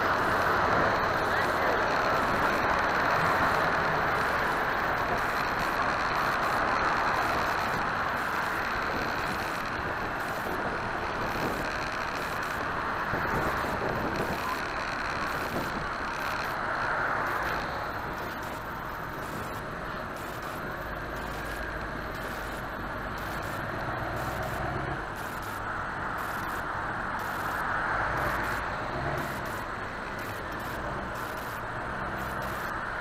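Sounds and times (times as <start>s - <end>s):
faint high whine: 0.0s - 32.8s
car engine: 0.0s - 33.0s
wind noise: 2.2s - 16.5s.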